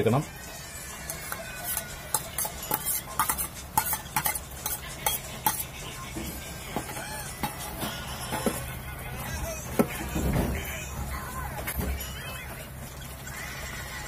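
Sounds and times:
ladle clinking against metal pot: 1.1 - 8.6.

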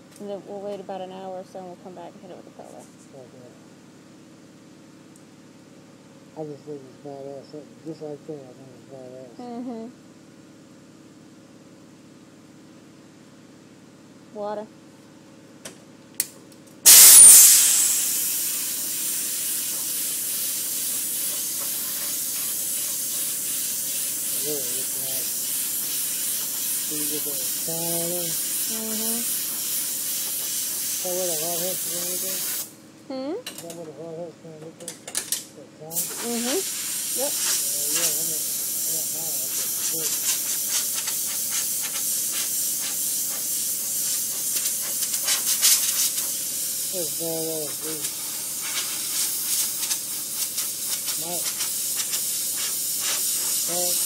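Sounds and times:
water sprayer hissing: 16.9 - 32.7, 35.9 - 54.0.

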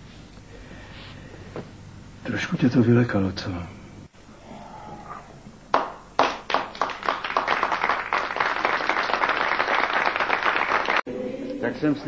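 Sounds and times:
audience applauding: 5.7 - 11.0.

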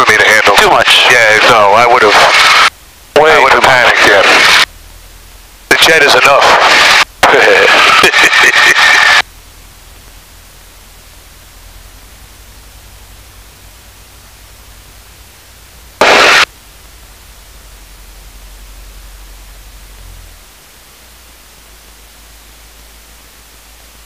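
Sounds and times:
intercom hiss: 0.0 - 4.7, 5.7 - 9.3, 16.0 - 17.6
loud rush of noise: 0.0 - 4.8, 5.6 - 9.3, 15.8 - 16.6
faint low hum: 0.0 - 24.0.

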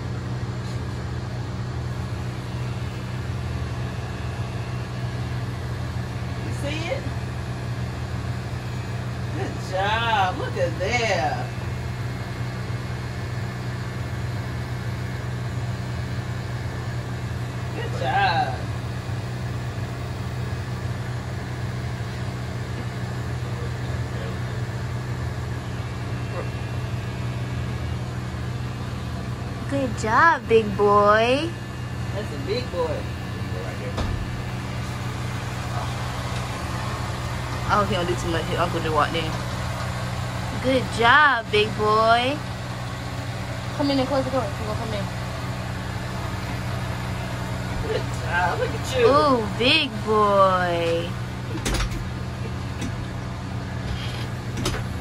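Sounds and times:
electric hair clippers buzzing: 18.0 - 55.0.

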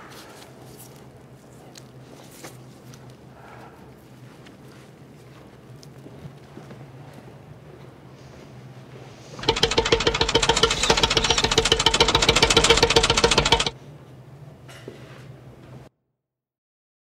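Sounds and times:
machine rattling with pitched tone: 9.4 - 13.8.

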